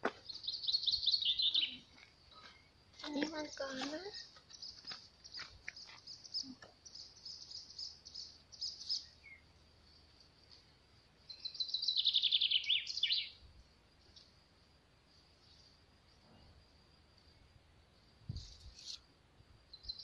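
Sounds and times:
songbirds chirping: 0.0 - 20.0.

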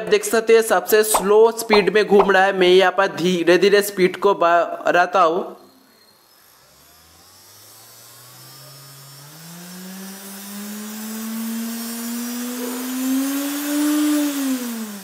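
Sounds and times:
electric motor whine rising: 6.2 - 15.0.

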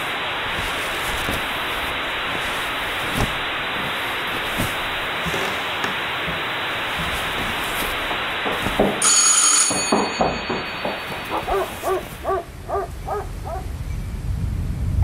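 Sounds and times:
hiss: 0.0 - 9.0.

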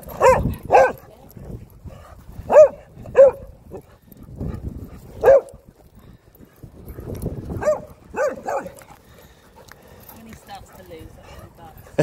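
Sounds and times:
small dog barking: 0.2 - 1.0, 2.5 - 3.5, 5.2 - 5.5, 7.6 - 8.8.

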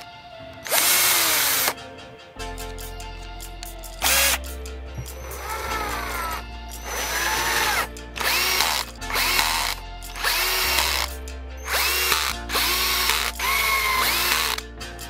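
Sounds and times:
background music: 0.0 - 15.0
cordless drill driving screws: 0.6 - 1.8, 4.0 - 4.4, 5.0 - 14.6.

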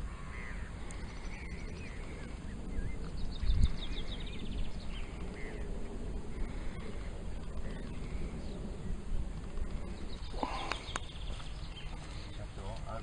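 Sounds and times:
wind rumbling on microphone: 0.0 - 13.0
bird chirps: 9.8 - 12.7.

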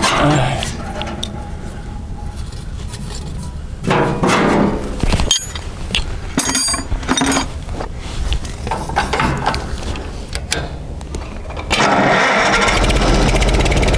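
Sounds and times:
tractor engine running: 11.2 - 13.9.

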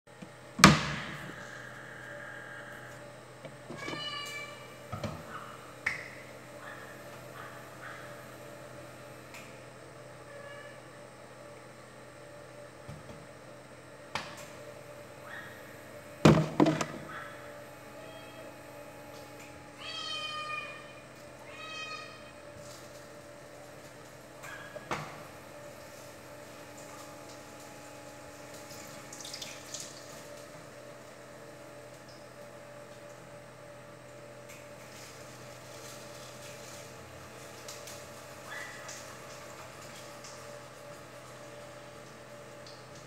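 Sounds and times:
cat meowing: 3.8 - 4.6, 19.8 - 22.3.

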